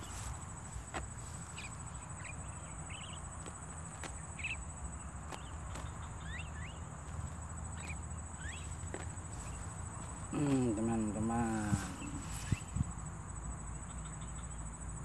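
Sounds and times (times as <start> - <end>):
bird chirps: 0.0 - 13.0, 13.6 - 14.8
high insect whine: 0.0 - 15.0.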